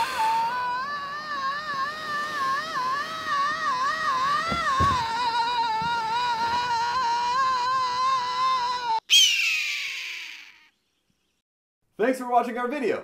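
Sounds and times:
man screaming: 0.0 - 9.0
shrill cry falling in pitch: 0.0 - 10.7.

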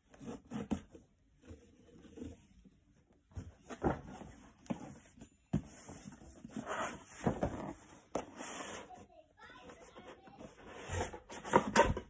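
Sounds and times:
cardboard boxes rustling: 0.0 - 9.1.

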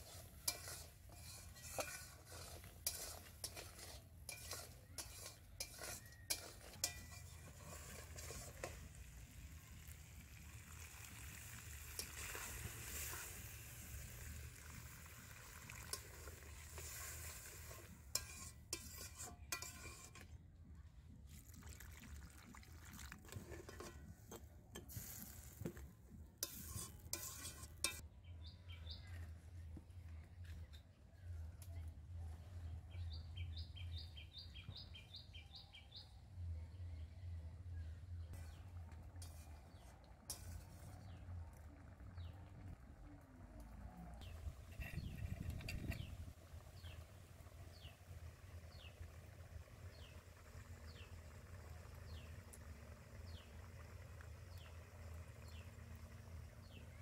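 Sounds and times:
metal spatula scraping a pan: 0.0 - 9.2, 11.4 - 14.4, 15.8 - 20.4, 23.2 - 25.8, 26.4 - 28.0, 39.2 - 41.2
food sizzling in oil: 0.0 - 20.1
water pouring: 7.4 - 18.1, 21.3 - 24.0.

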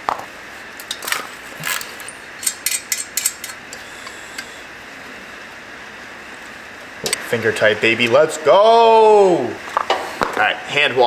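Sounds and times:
metal tools clinking: 0.8 - 3.6
ratchet clicking: 1.7 - 3.6.

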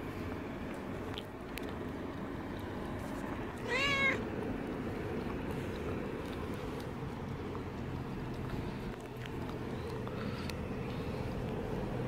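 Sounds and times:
cat meowing: 3.6 - 4.2.

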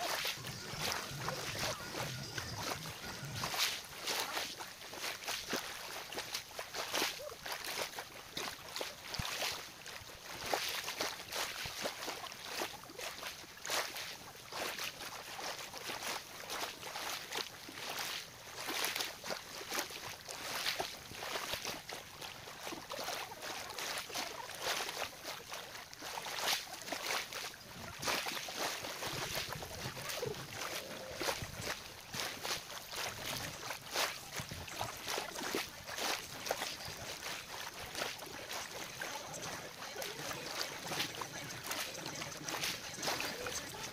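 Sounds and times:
waves lapping on shore: 0.0 - 43.9.

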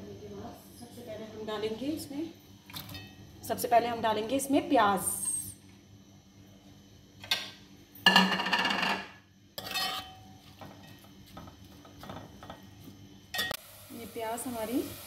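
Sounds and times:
metal ladle scraping pot: 9.6 - 10.2
onions sizzling in oil: 13.3 - 15.0.

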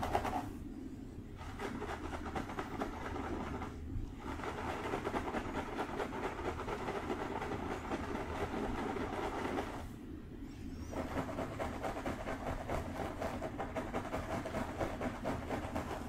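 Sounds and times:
fingertips scratching through hair: 1.4 - 9.8.

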